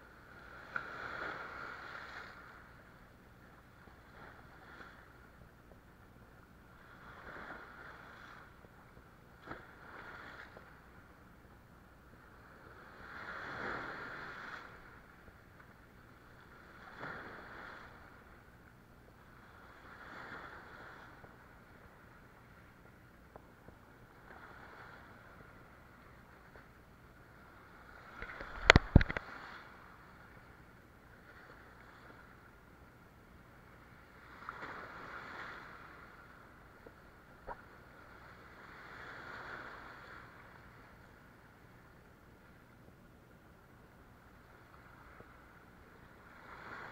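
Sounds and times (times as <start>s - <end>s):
sea waves washing over rocks: 27.6s - 30.0s.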